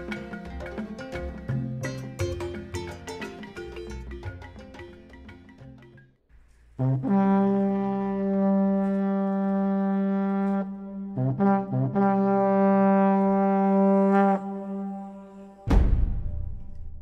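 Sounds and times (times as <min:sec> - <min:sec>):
low brass notes: 0:06.8 - 0:15.7
heavy drum hit: 0:15.7 - 0:17.0.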